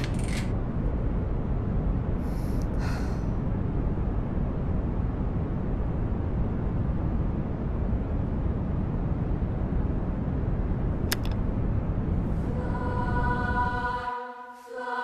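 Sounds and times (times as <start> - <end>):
low rumbling noise: 0.0 - 15.0
radio switch clicks: 11.1 - 11.4.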